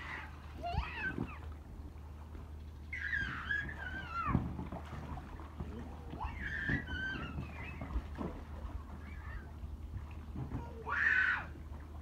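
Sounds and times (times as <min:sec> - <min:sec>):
child squealing: 0:06.2 - 0:07.6.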